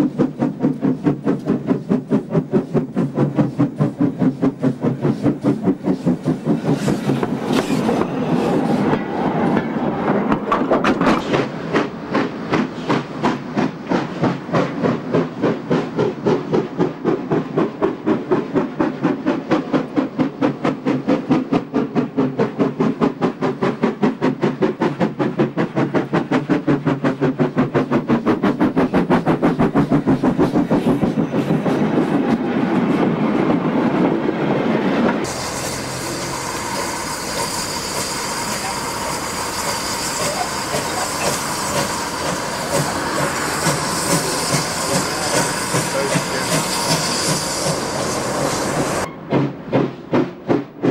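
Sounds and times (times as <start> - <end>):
steam locomotive chuffing: 0.0 - 50.9
wagons rattling over rails: 36.8 - 49.9.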